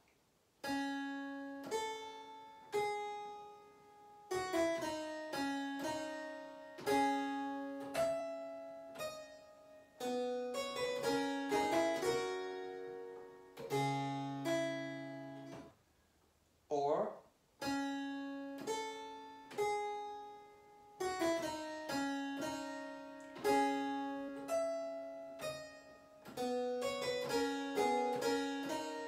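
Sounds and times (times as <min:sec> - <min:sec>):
harpsichord playing: 0:04.2 - 0:15.7, 0:17.6 - 0:29.0.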